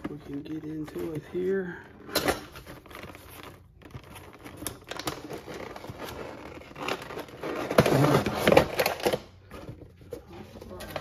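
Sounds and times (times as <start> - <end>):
plastic packaging crinkling: 2.6 - 9.4
plastic scraping on cardboard: 2.9 - 9.6.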